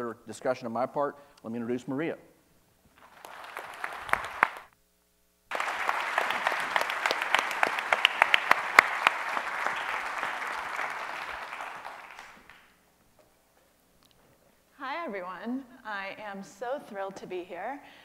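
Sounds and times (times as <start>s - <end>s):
audience applauding: 3.0s - 4.7s, 5.5s - 12.8s.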